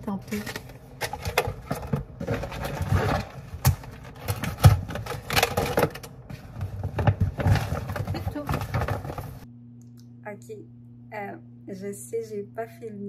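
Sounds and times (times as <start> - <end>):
plastic bags rustling: 0.0 - 9.4.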